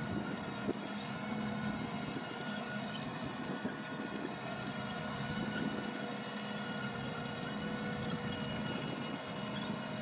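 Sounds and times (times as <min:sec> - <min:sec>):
harvester engine and machinery: 0:00.0 - 0:10.0.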